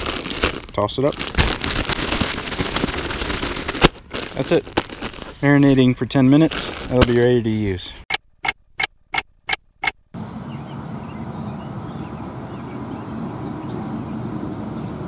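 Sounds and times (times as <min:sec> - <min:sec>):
sharp ticks: 0:08.1 - 0:10.1
outdoor background rumble: 0:08.5 - 0:15.0.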